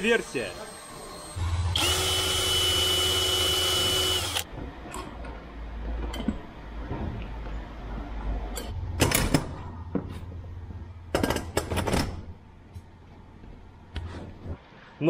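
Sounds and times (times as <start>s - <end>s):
cordless drill running: 0.5s - 4.5s.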